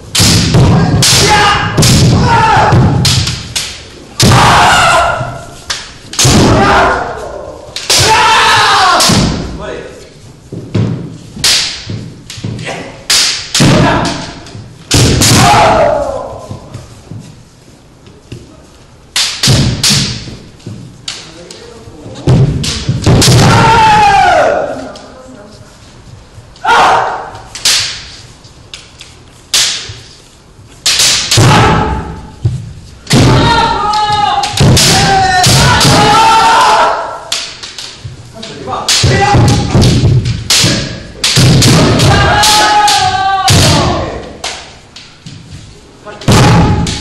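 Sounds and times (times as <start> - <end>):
bamboo sword strikes: 0.1 - 9.6, 10.8 - 16.6, 19.2 - 20.5, 22.3 - 24.5, 26.6 - 28.2, 29.5 - 30.0, 30.8 - 38.0, 38.8 - 45.1, 46.2 - 47.0
person shouting: 33.3 - 37.2, 41.9 - 44.2.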